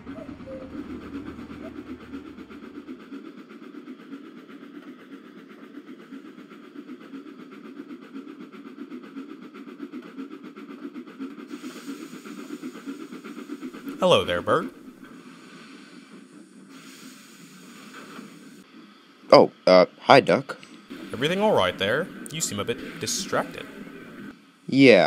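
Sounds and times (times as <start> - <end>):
low hum: 0.0 - 3.9
miniature train rolling on rails: 0.0 - 18.7, 20.5 - 24.7
steam hiss: 0.0 - 19.9, 20.7 - 25.0.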